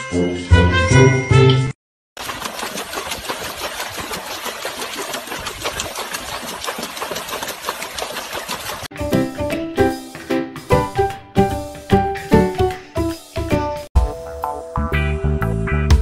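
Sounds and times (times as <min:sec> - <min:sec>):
music: 0:00.0 - 0:01.8, 0:08.9 - 0:16.0
dog splashing water in tub: 0:02.2 - 0:08.9.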